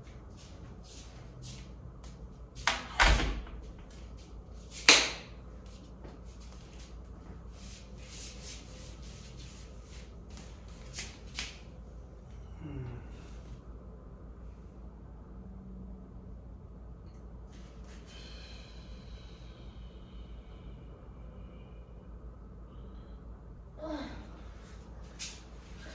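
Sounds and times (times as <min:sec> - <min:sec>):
shuffling steps: 0:00.0 - 0:02.8, 0:03.5 - 0:12.2
sharp loud slap: 0:04.8 - 0:05.4.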